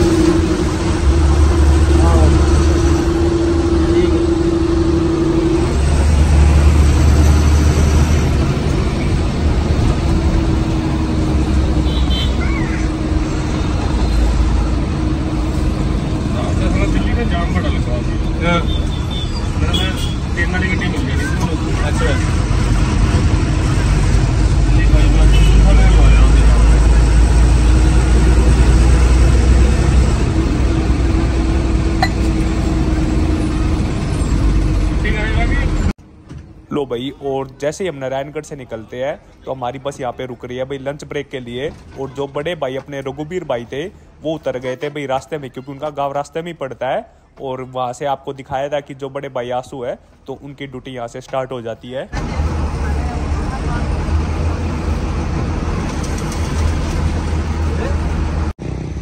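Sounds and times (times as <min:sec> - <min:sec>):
steady drone: 0:00.0 - 0:09.6
bus engine rumble: 0:00.0 - 0:47.6, 0:49.8 - 0:59.0
road noise: 0:00.0 - 0:59.0.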